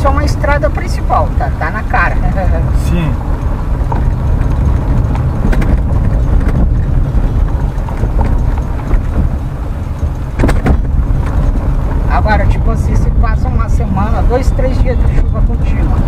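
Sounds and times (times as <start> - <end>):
tyres rumbling on rough road: 0.0 - 16.0
car knocks and jolts: 3.2 - 12.9.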